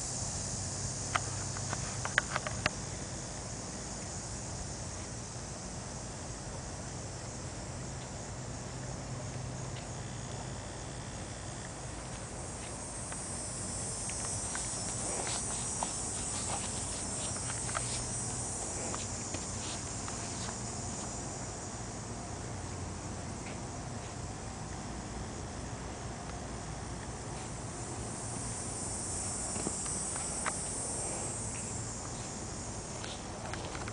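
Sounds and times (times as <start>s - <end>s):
high-pitched insect buzz: 9.7s - 22.0s, 27.4s - 33.9s
rustles in grass: 11.8s - 21.3s.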